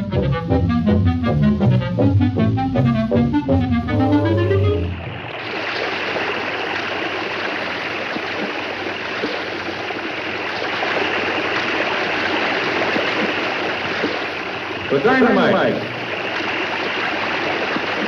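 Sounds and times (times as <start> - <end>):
orchestral music: 0.0 - 5.2
waterfall rushing: 4.5 - 18.0.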